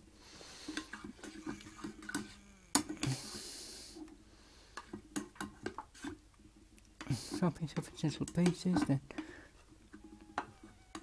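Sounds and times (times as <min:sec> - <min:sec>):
hiss: 0:03.0 - 0:04.0.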